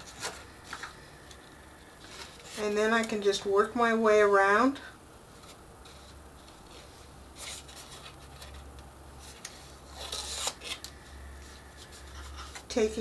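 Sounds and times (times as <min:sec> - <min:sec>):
paper rustling and rubbing: 0:05.3 - 0:10.8.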